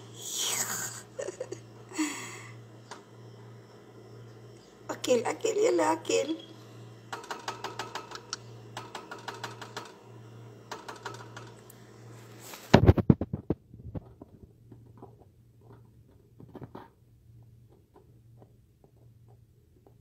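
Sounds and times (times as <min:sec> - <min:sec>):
knocks and rattles: 0:12.9 - 0:20.0.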